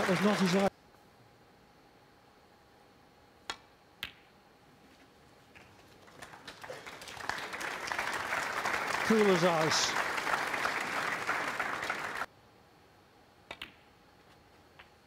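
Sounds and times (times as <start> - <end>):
audience applause: 0.0 - 0.7, 5.7 - 12.3.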